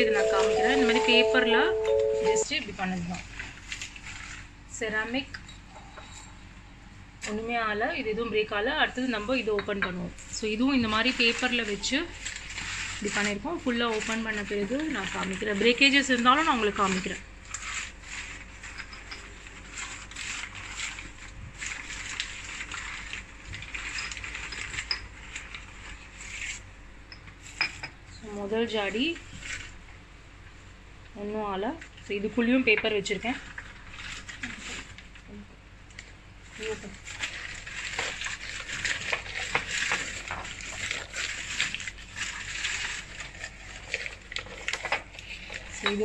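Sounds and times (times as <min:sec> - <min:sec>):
paper crinkling and rustling: 0:10.9 - 0:15.8, 0:19.4 - 0:26.7, 0:35.9 - 0:45.8
small paper crackles: 0:19.4 - 0:26.7, 0:35.9 - 0:45.8.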